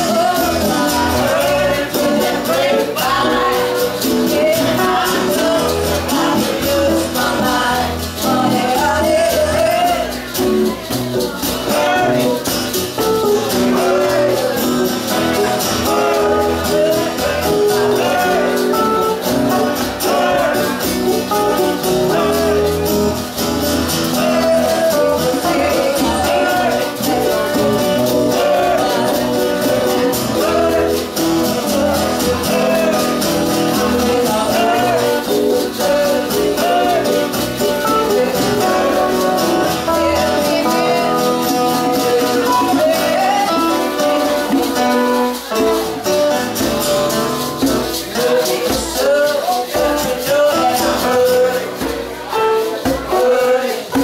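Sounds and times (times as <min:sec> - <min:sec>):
woman singing lead vocal: 0:00.0 - 0:10.0, 0:39.7 - 0:43.8
male backing voices: 0:00.0 - 0:54.0
shakers and maracas: 0:00.0 - 0:54.0
strummed acoustic guitars: 0:00.0 - 0:54.0.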